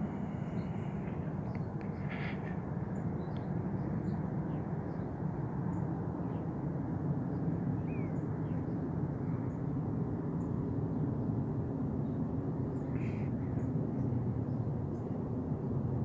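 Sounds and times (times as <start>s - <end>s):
faint bird chirp: 0.0s - 5.1s, 7.3s - 9.6s, 12.8s - 15.1s
jet airliner rumble overhead: 0.0s - 16.0s.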